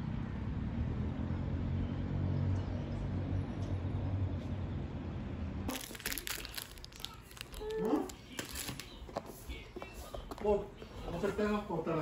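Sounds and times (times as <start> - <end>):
distant city traffic rumble: 0.0 - 7.6.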